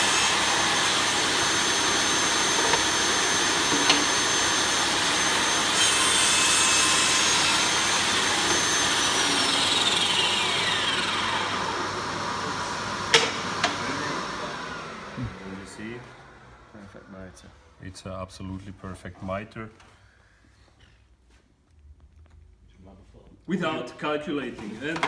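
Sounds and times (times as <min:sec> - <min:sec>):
saw blade spinning down: 0:00.0 - 0:16.5
saw cutting wood: 0:00.0 - 0:16.6.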